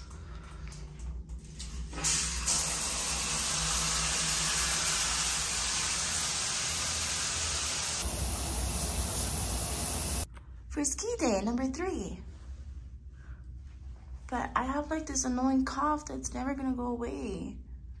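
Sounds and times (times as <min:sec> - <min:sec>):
shower valve turned on: 0:01.3 - 0:10.3
water spraying onto tiled floor: 0:01.9 - 0:10.3.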